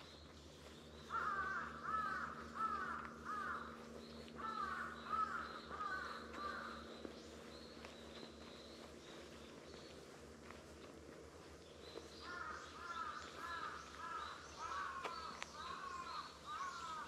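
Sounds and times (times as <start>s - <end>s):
crow cawing: 1.0s - 7.0s, 12.2s - 17.0s.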